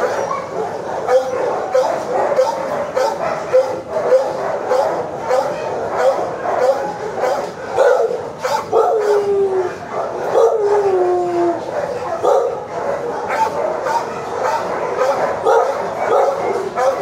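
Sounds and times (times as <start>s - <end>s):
dog howling: 0.0s - 17.0s
many dogs barking: 0.0s - 17.0s.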